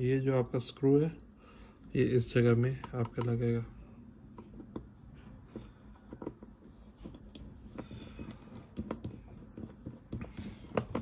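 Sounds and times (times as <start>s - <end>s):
light clicks and taps: 2.7s - 3.5s.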